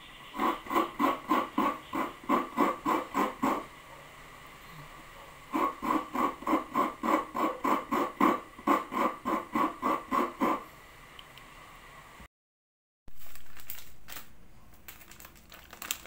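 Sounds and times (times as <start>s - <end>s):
coconut grated by hand: 0.4s - 3.7s, 5.6s - 10.6s.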